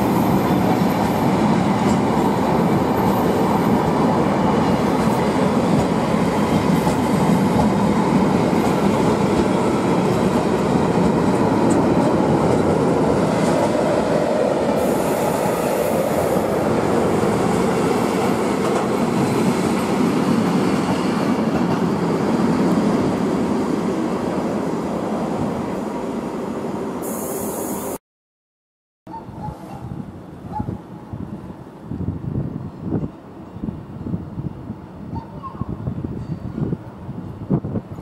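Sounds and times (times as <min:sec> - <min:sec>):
freight train wheels rumbling on rails: 0:00.0 - 0:27.1.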